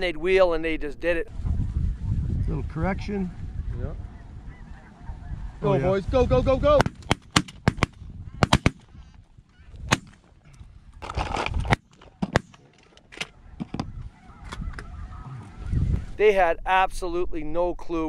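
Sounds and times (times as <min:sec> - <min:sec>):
geese honking: 0:03.3 - 0:06.0, 0:13.0 - 0:16.2
shotgun blasts: 0:06.7 - 0:08.9, 0:09.9 - 0:10.2.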